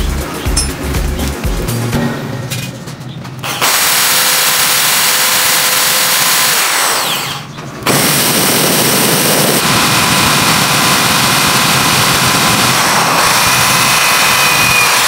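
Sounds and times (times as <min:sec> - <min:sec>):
electric drill boring: 0:03.4 - 0:15.0.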